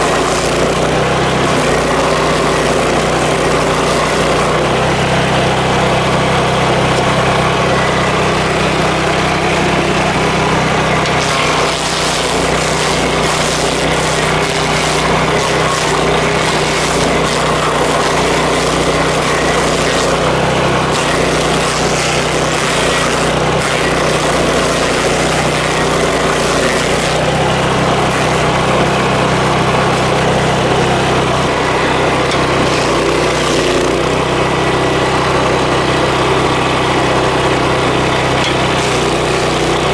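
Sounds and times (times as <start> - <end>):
cutter wheel grinding wood: 0.0 - 39.9
stump grinder engine drone: 0.0 - 39.9.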